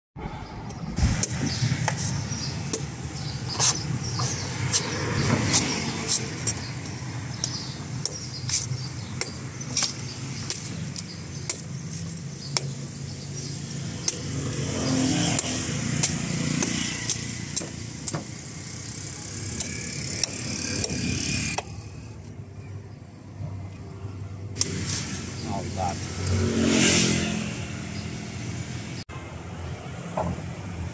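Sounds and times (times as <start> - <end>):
street traffic: 0.2 - 30.9
cleaver chopping coconut husk: 1.1 - 18.5, 19.4 - 21.8.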